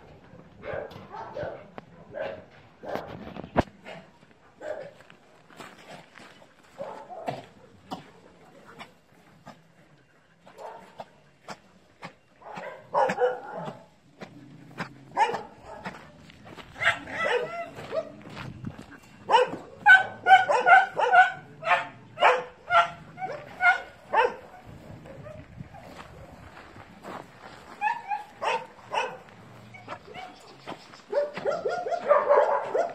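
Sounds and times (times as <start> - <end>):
dogs barking: 0.6 - 3.2, 4.0 - 5.1, 6.7 - 9.6, 10.5 - 18.3, 19.0 - 26.0, 27.7 - 32.9.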